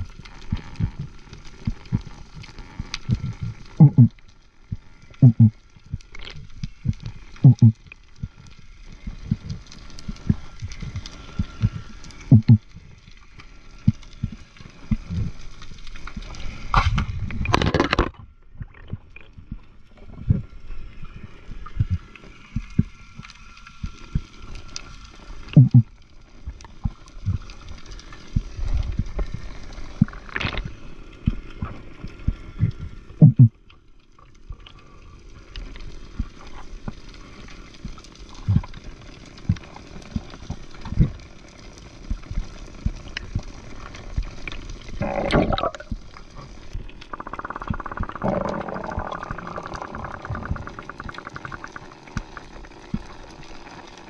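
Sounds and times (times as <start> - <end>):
water sloshing and gurgling: 0.0 - 54.0
low knocks and thumps: 12.3 - 12.6.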